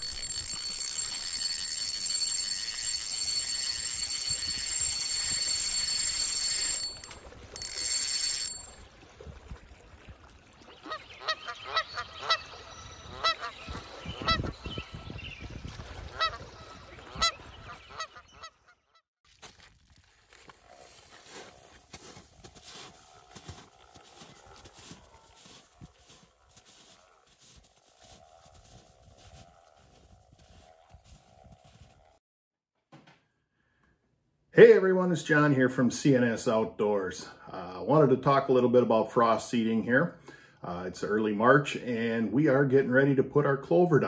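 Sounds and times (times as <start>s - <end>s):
geese honking: 10.8s - 14.4s.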